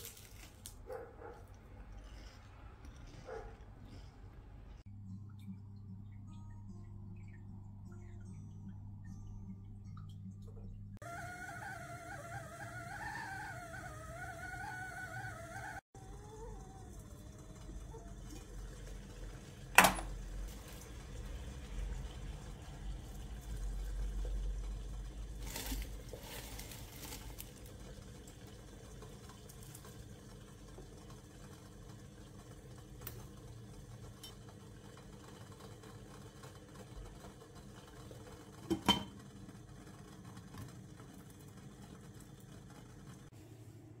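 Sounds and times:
low steady hum: 1.5 - 29.1.

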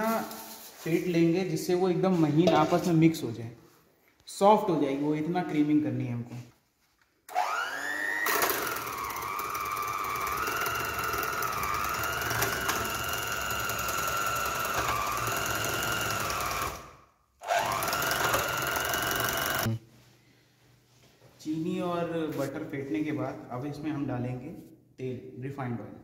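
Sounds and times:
electric hand mixer whining: 7.3 - 19.7.

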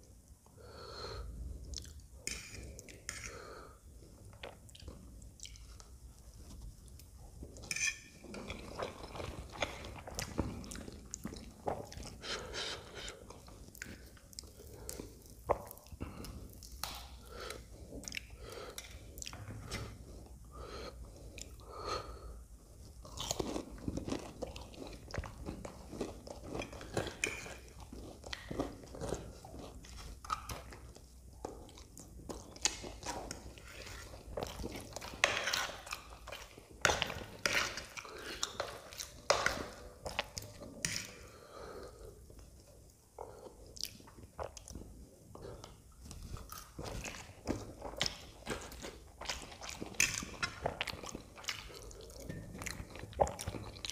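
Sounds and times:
wet chewing mouth sounds: 8.3 - 20.3, 22.8 - 53.9.

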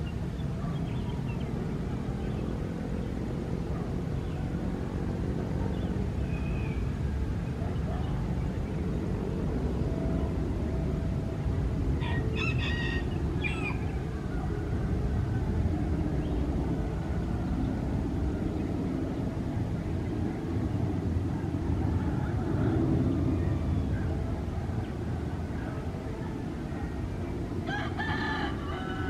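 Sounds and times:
rooster crowing: 12.0 - 13.9, 27.6 - 29.0.

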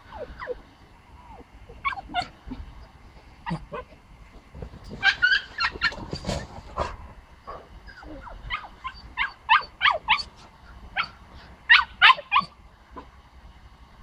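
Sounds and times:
puppy yapping: 1.3 - 2.4, 3.4 - 3.9, 5.0 - 6.4, 7.9 - 10.3, 11.0 - 12.6.

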